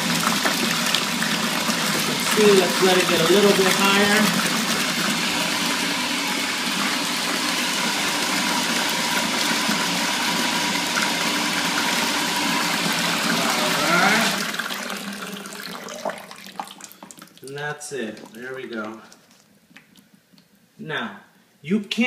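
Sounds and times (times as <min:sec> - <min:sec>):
water pouring and splashing: 0:00.0 - 0:06.1, 0:12.8 - 0:20.0.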